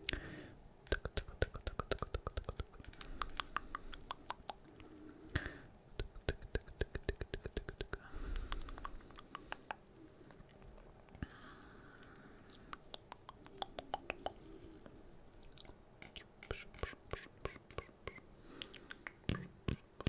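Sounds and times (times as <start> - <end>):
breathy mouth sounds: 0.0 - 20.0
nails tapping hollow vinyl: 0.9 - 4.6, 6.0 - 9.8.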